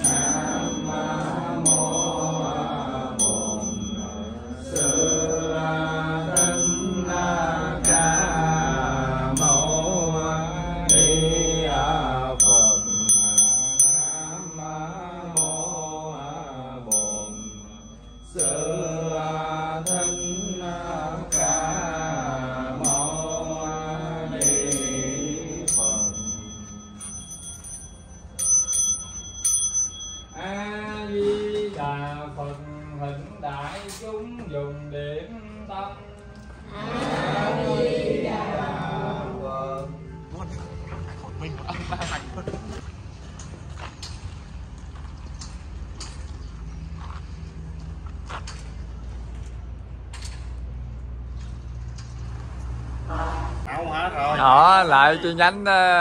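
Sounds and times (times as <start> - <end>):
person chanting: 0.0 - 26.6, 30.4 - 41.4
small bell struck: 0.0 - 31.0.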